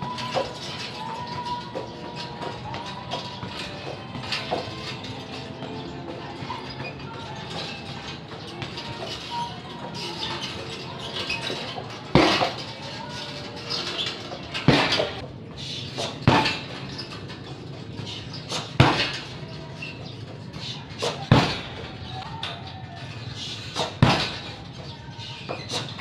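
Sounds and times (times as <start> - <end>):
kicks smacking heavy bag: 12.1 - 12.5, 14.6 - 15.2, 16.1 - 16.7, 18.8 - 19.2, 21.3 - 21.8, 24.0 - 24.5.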